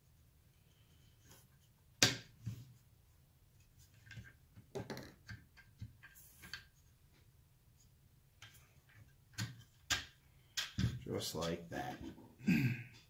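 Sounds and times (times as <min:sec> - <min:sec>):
plastic parts clicking and knocking: 0:04.0 - 0:06.8, 0:08.4 - 0:12.2.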